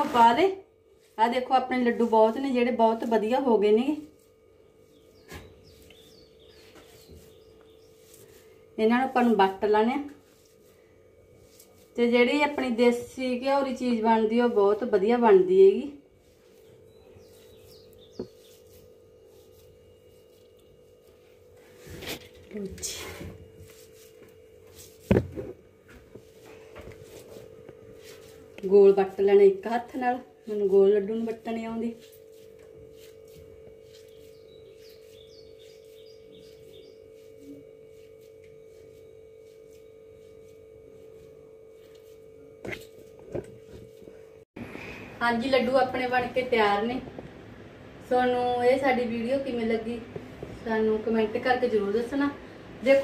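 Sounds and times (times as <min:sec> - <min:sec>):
soft crackling of mixture rolled by hand: 0:00.0 - 0:44.5
steady low hum: 0:00.0 - 0:53.0
faint high bird chirps: 0:04.6 - 0:08.3, 0:16.5 - 0:19.4, 0:33.9 - 0:37.8.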